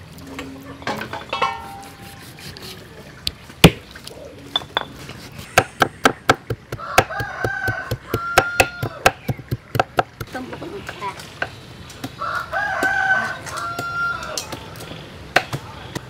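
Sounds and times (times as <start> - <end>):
knife knocking on wooden board: 5.6 - 10.3.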